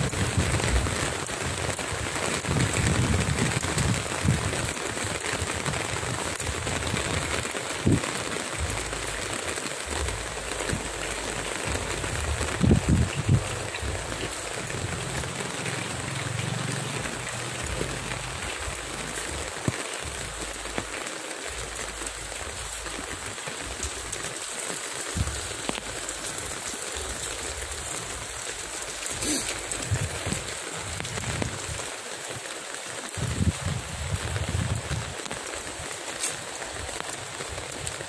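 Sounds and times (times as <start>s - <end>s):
low rumbles: 0.0s - 24.3s
steady rain on wet street: 0.0s - 38.0s.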